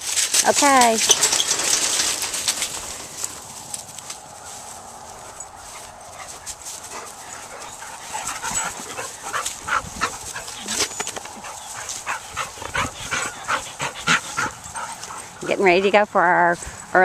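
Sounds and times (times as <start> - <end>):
dogs yelping and whining: 5.3 - 15.4.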